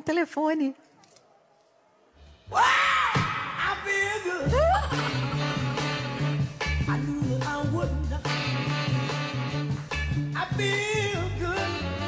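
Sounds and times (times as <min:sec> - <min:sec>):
upbeat music with bouncing bass: 0:03.6 - 0:12.0.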